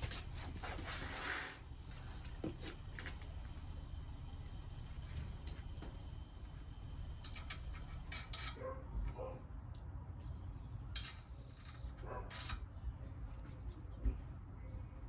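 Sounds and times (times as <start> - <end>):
steady low rumble: 0.0 - 11.8
bird chirping: 3.4 - 4.1, 10.2 - 11.9.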